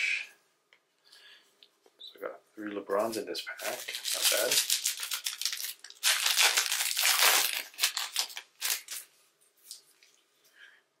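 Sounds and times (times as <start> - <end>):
wrapper tearing and crinkling: 3.6 - 9.1.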